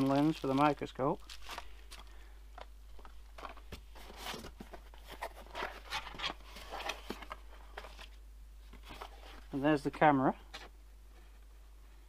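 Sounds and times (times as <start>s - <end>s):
cardboard boxes rustling and scraping: 3.0s - 9.5s.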